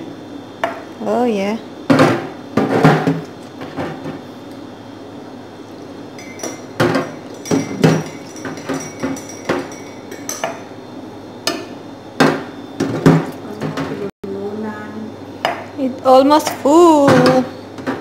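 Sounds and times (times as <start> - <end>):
metal ladle clinking against glass: 6.2 - 10.7.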